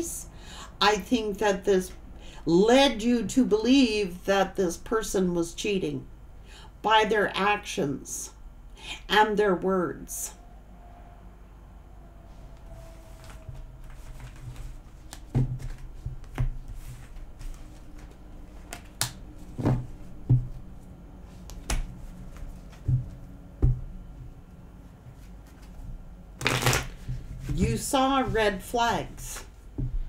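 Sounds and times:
cards shuffled by hand: 13.2 - 19.8, 26.4 - 27.6.

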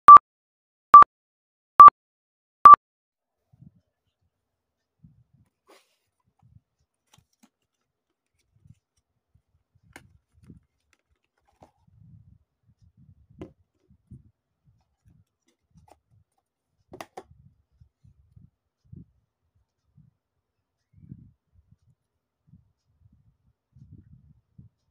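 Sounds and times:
light taps scrapes and clicks: 7.0 - 9.0.

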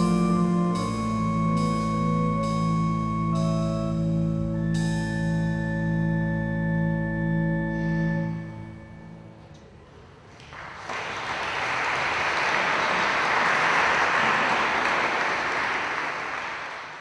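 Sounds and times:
organ chord: 0.0 - 9.6
audience applause: 10.3 - 17.0.

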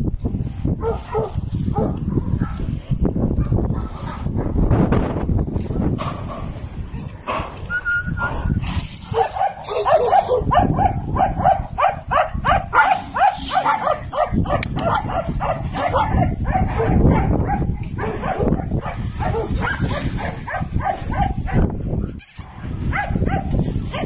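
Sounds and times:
dog barking in high yelps: 0.8 - 2.6, 9.0 - 24.0.

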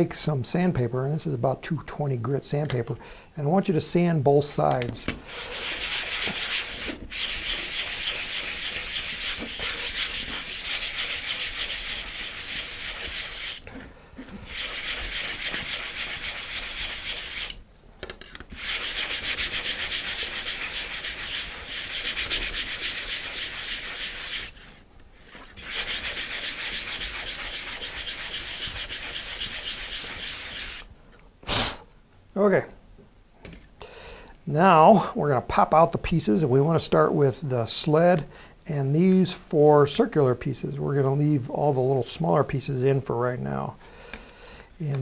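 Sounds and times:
sandpaper rubbing on plywood: 5.3 - 13.6, 14.4 - 17.6, 18.5 - 24.8, 25.4 - 30.9.

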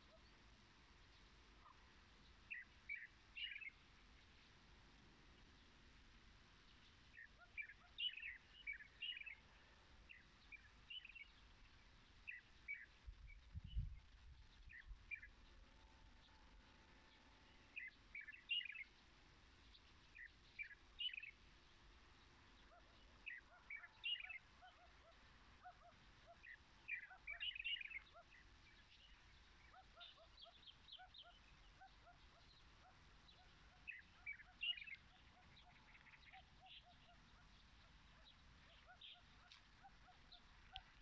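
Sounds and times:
birds chirping: 22.0 - 41.0.

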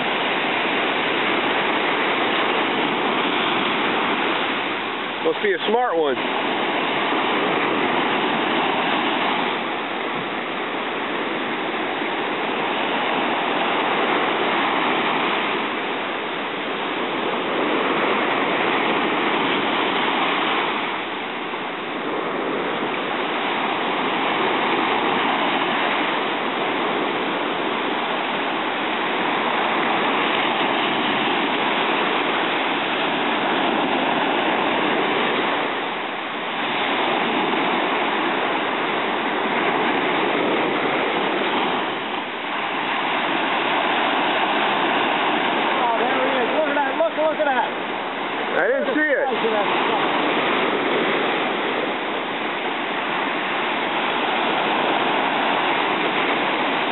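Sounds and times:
ocean surf breaking on beach: 0.0 - 56.9.

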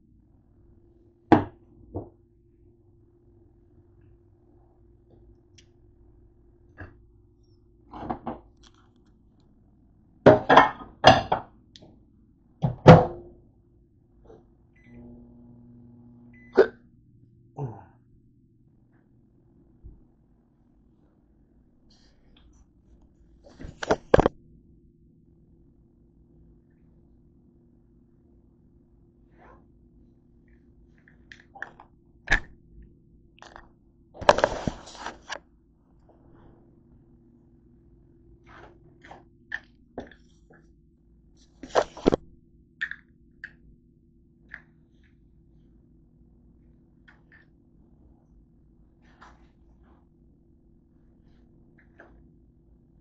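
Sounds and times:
microwave oven hum: 0.0 - 53.0
microwave beep: 14.8 - 15.3, 16.2 - 16.8
scraping and rustling: 34.2 - 35.4.

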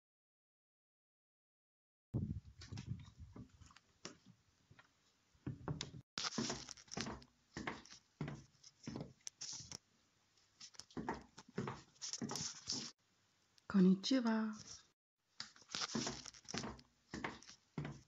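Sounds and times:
footsteps: 6.2 - 9.8, 10.6 - 13.0, 15.4 - 18.0
rustling: 6.2 - 9.8, 10.4 - 13.0, 14.6 - 18.0.

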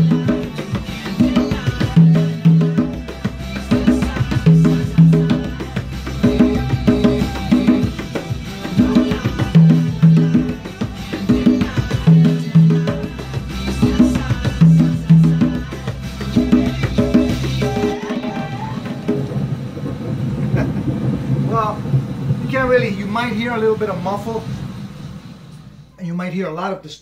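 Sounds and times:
conga drums played by hand: 0.0 - 19.8.

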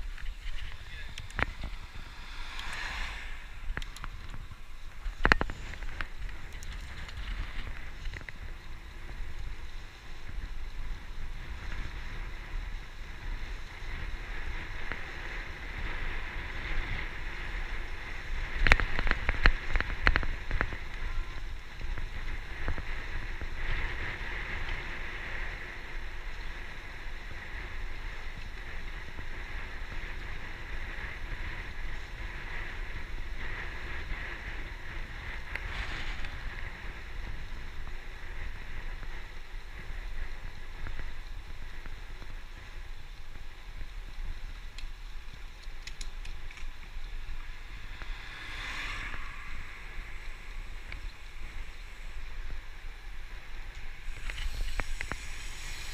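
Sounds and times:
tyres hissing on tarmac: 0.0 - 13.9, 34.3 - 55.9
wind rushing over microphone: 0.0 - 55.9.

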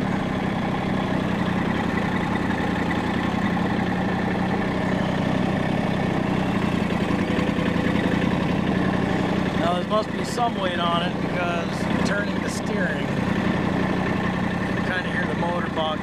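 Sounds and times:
diesel tractor engine running: 0.0 - 16.0.

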